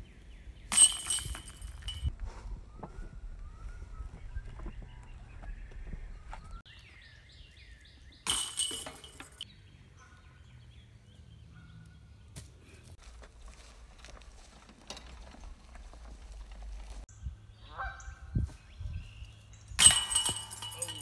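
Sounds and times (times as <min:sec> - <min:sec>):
bird chirping: 0:02.9 - 0:08.4.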